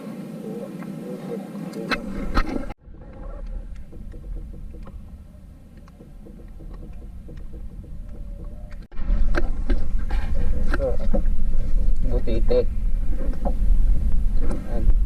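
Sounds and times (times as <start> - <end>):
sea water around boat: 0.0 - 15.0
wind rumble: 0.0 - 15.0
faint clicks: 3.1 - 8.9.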